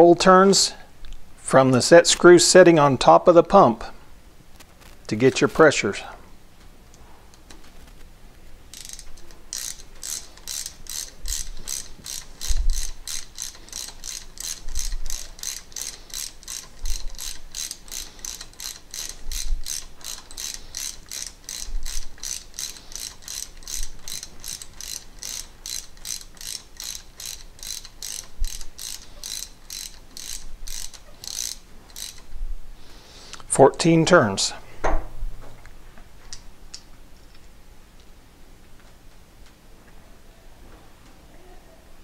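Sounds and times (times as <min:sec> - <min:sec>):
hex driver ratchet clicks: 0:08.7 - 0:32.3.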